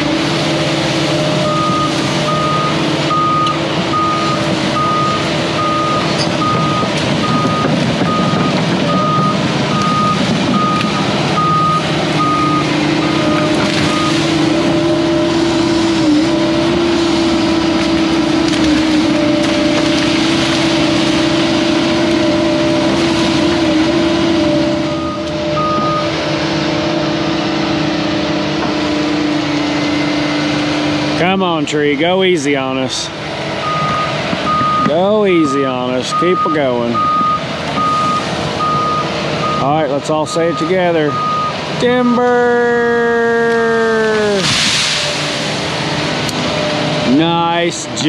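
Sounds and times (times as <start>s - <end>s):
excavator diesel engine running: 0.0s - 48.0s
travel alarm beeping: 1.4s - 14.2s, 24.9s - 26.1s, 33.6s - 35.0s, 36.1s - 39.8s, 40.4s - 41.6s.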